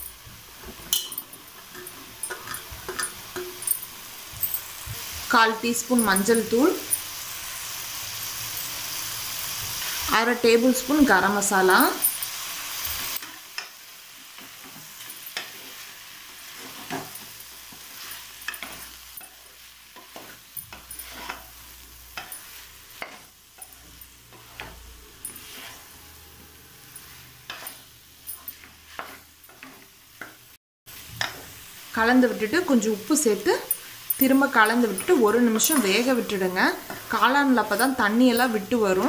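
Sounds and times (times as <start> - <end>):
mushrooms sizzling in pot: 0.0 - 39.0
spatula scraping and tapping pot: 0.6 - 5.3, 16.5 - 30.4, 31.1 - 31.5.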